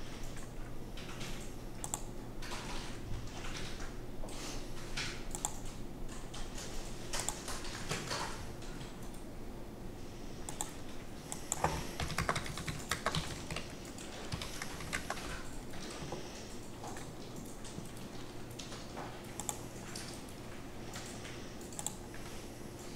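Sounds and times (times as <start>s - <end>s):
faint steady hum: 0.0s - 22.9s
keyboard typing: 10.5s - 22.1s.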